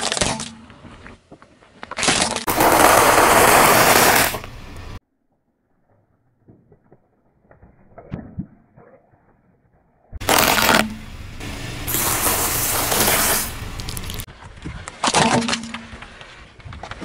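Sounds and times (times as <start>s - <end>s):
tyre crunching objects: 1.8s - 4.6s, 10.2s - 11.1s
tubes squishing and popping: 10.2s - 11.0s, 13.8s - 16.0s.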